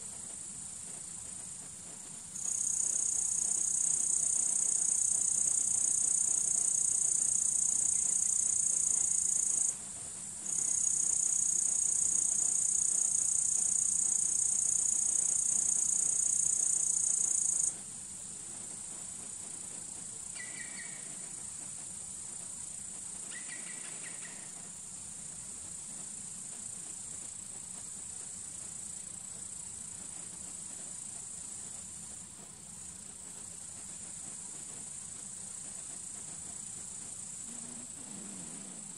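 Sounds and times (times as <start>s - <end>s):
shrill insect chorus: 2.0s - 17.8s, 18.9s - 24.7s, 32.8s - 38.9s.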